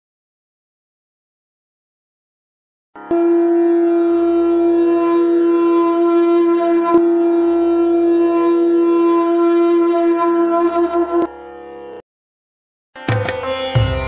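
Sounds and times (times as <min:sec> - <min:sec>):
conch shell blown: 0:03.0 - 0:12.0.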